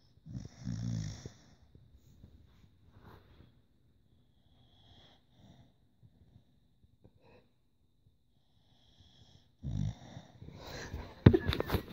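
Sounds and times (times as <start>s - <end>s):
dog snoring and wheezing: 0.0s - 1.8s, 8.5s - 11.2s
phone thump and rustling: 11.3s - 11.9s.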